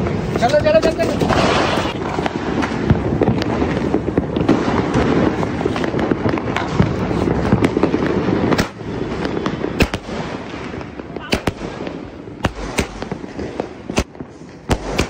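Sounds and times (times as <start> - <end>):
firecrackers popping: 0.0 - 15.0.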